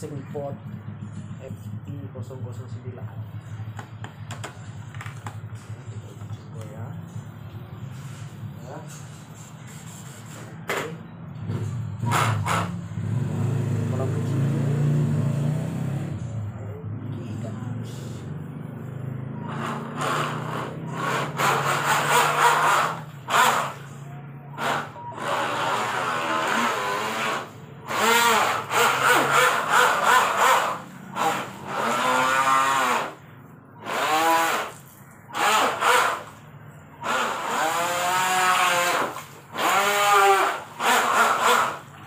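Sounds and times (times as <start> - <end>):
rc boat motor whining: 19.0 - 33.2, 33.8 - 42.0.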